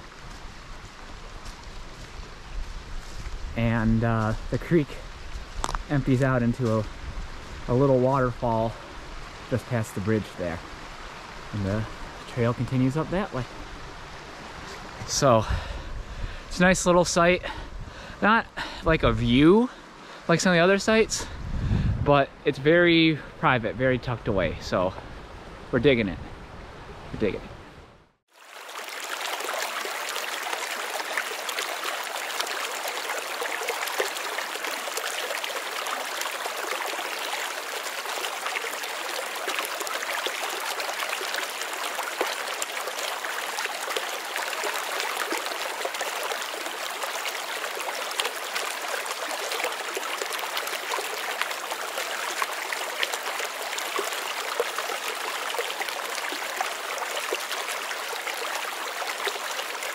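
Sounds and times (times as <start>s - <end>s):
creek water trickling: 0.0s - 21.4s, 28.3s - 59.9s.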